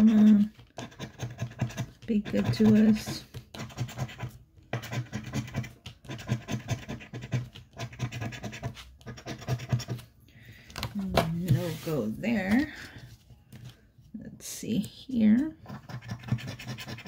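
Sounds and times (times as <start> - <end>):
scratching lottery ticket: 0.0 - 10.1, 14.9 - 17.0.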